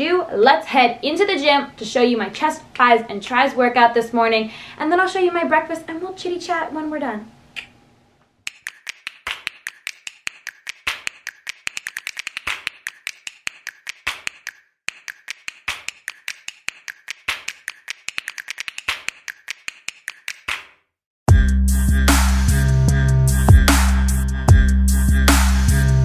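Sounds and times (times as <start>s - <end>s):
rapid sharp clicks: 8.4s - 20.6s.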